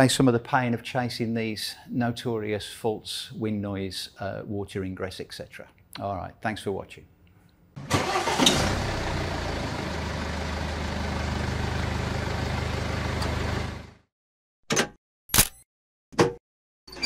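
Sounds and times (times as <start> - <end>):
car engine starting and idling: 7.8 - 14.0.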